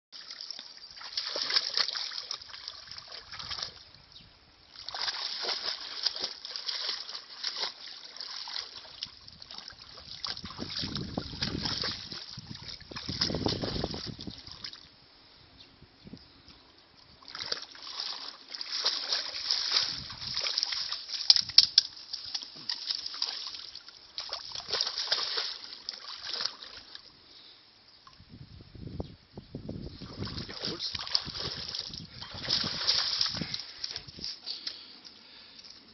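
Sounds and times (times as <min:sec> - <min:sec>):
dog splashing in water: 0:00.2 - 0:03.8, 0:04.8 - 0:14.8, 0:17.2 - 0:27.0, 0:30.0 - 0:34.3.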